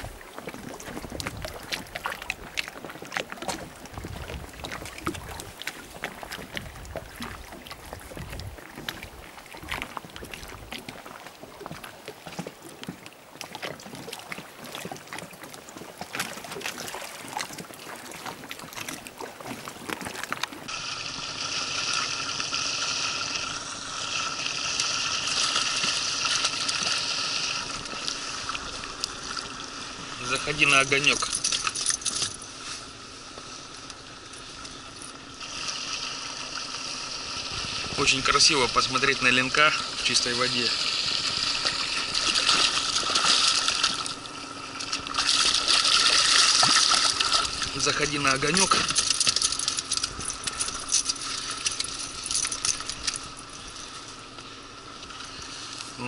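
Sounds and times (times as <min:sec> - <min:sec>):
wind on microphone: 0:00.0 - 0:02.7, 0:03.4 - 0:11.0, 0:37.4 - 0:38.3
river water lapping: 0:00.0 - 0:56.0.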